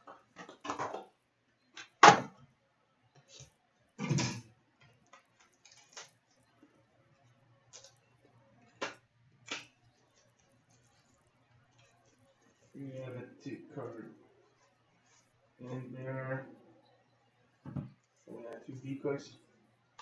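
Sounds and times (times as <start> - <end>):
packaging rustling: 5.1 - 8.1.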